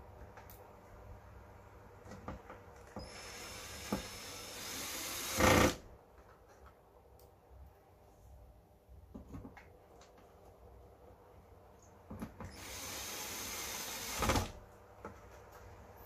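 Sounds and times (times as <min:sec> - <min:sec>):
cordless drill running: 0:03.0 - 0:05.8, 0:12.5 - 0:14.5.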